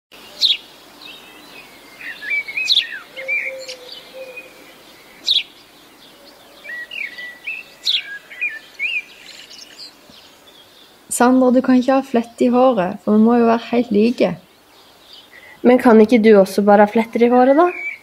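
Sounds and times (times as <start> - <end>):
warbling birdsong: 0.1 - 18.0
sharp bird chirp: 1.2 - 5.5.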